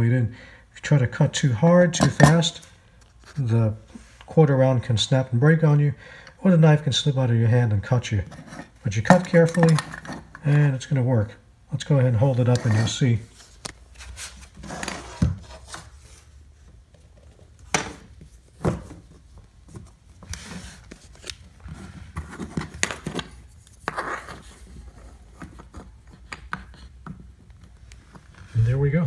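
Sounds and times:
light rubbing and scraping: 8.1 - 10.6, 12.3 - 16.4, 18.3 - 27.0, 28.0 - 29.0.

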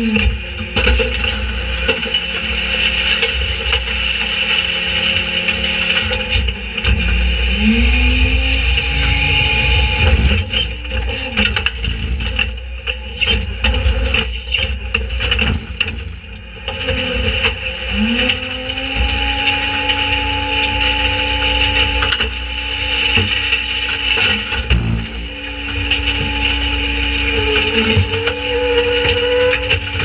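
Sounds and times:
diesel engine and hydraulics whine: 6.6 - 16.5, 24.6 - 25.7.

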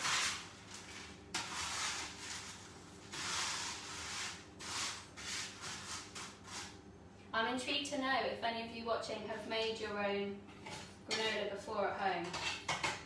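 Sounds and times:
spatula scraping baking tray: 0.0 - 6.8, 12.2 - 13.0.

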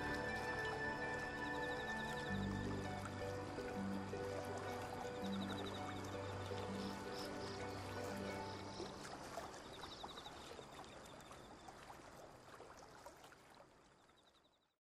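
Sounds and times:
background music: 0.0 - 9.4
faint noise with crackles: 0.0 - 14.5.

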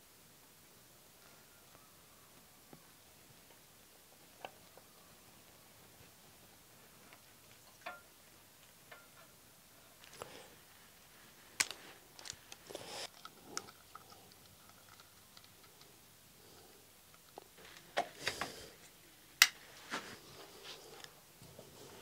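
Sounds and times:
hand tools clicking and tapping: 7.1 - 8.1
electrical cable rustling: 10.0 - 15.7, 17.2 - 22.0.

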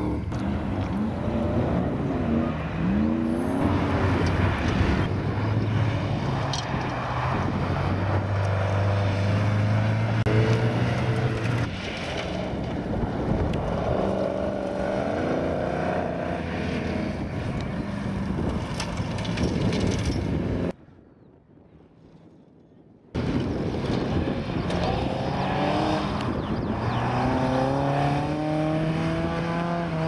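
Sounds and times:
car engine revving: 0.0 - 17.9, 24.6 - 30.0.

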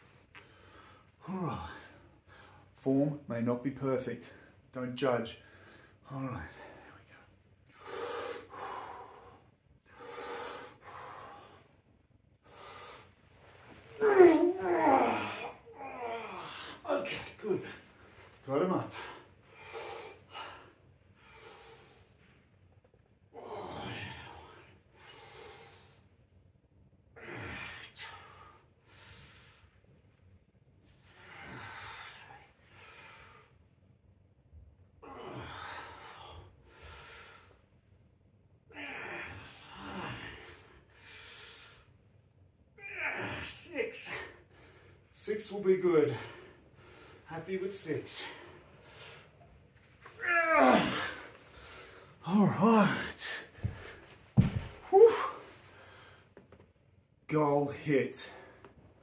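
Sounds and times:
man groaning: 1.2 - 2.0, 13.9 - 17.8, 23.4 - 24.4, 38.7 - 40.5, 42.8 - 44.3, 50.2 - 51.4, 52.2 - 53.5, 54.8 - 55.5
man breathing deeply: 5.4 - 16.9, 17.6 - 22.5, 30.9 - 33.6, 35.0 - 37.8, 48.0 - 49.6, 50.6 - 56.4.

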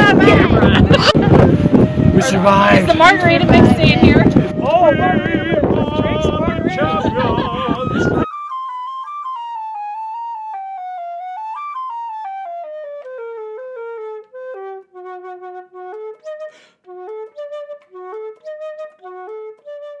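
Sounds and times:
solo flute melody: 0.5 - 20.0.

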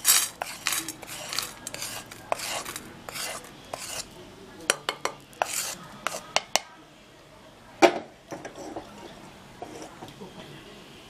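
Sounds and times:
dry spices rattling onto plate: 0.0 - 4.1
wooden spatula scraping: 0.0 - 4.2, 4.9 - 6.5, 8.4 - 10.1.

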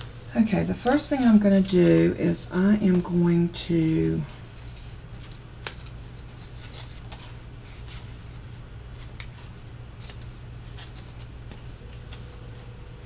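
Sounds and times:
steady low hum: 0.0 - 13.0
cardstock rustling and clicking: 3.8 - 8.2.

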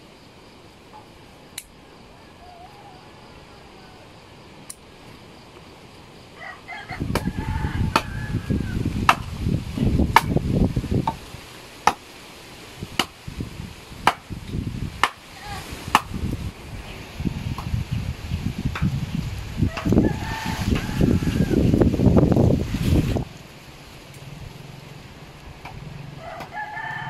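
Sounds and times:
chicken calling: 1.8 - 4.2, 6.4 - 9.0, 19.6 - 21.8
wind buffeting microphone: 6.7 - 11.6, 12.6 - 26.1
sharp chopping clicks: 9.1 - 9.3, 11.8 - 12.0, 14.0 - 14.3.

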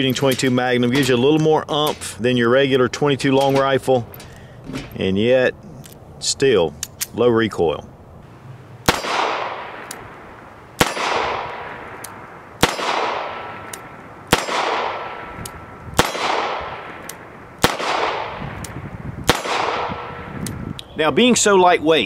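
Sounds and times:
revolver shots with echo: 8.8 - 10.2, 10.8 - 12.0, 12.6 - 15.4.

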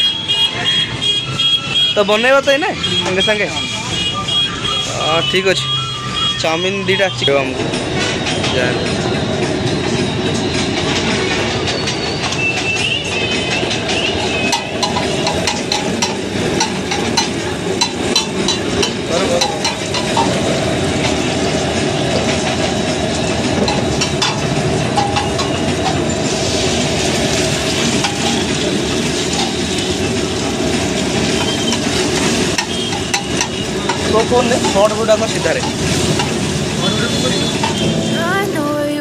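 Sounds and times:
onions sizzling in oil: 13.8 - 37.9.

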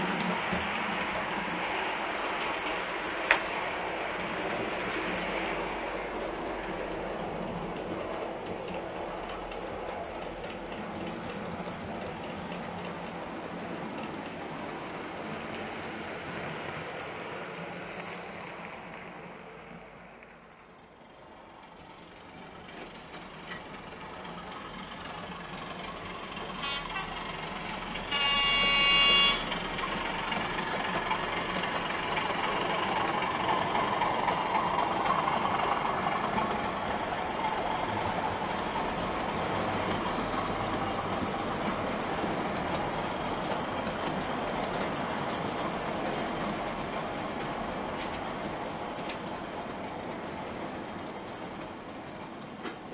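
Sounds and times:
model train engine and wheels: 0.0 - 52.9
model locomotive horn: 26.6 - 27.2, 28.0 - 29.6.

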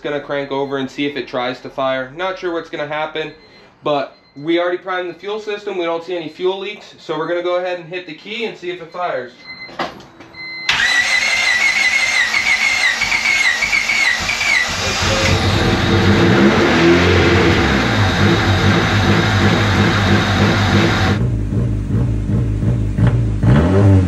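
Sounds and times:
engine starter cranking: 10.7 - 21.2
engine running lumpy: 14.2 - 23.5.

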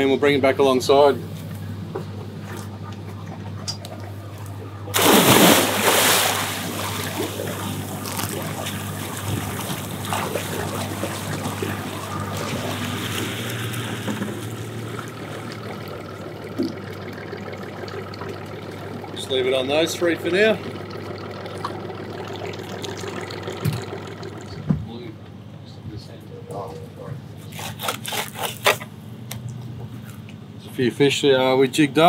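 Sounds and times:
steady low hum: 0.0 - 32.0
swimming splashes: 3.2 - 24.7
loud splash into water: 4.9 - 15.9.

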